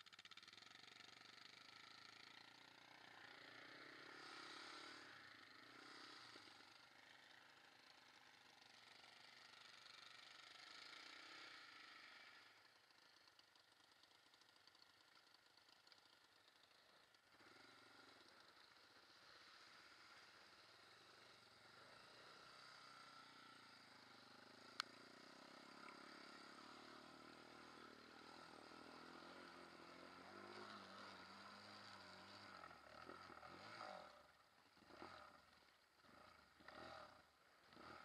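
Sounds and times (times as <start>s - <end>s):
muffled quad bike engine: 0.0s - 38.0s.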